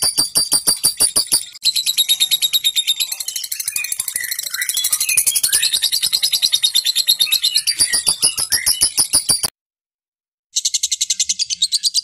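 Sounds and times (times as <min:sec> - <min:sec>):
lovebird rattling chatter: 0:00.0 - 0:01.6, 0:07.6 - 0:09.5
bird wavering squeaks: 0:07.4 - 0:09.5.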